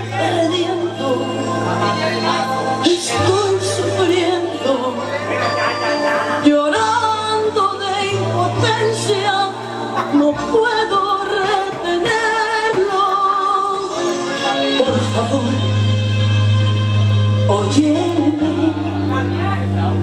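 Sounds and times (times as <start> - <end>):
person singing: 0.0 - 20.0.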